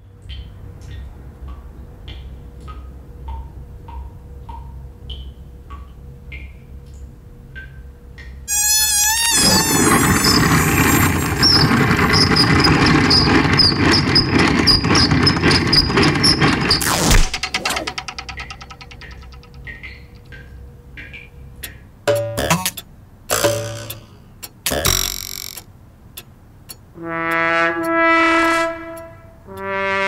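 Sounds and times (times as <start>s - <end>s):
short high chirps: 8.5s - 11.5s
cartoon mosquito whine: 8.5s - 11.6s
toilet paper roll spinning whir: 8.5s - 19.0s
empty roll fluttering: 8.5s - 20.2s.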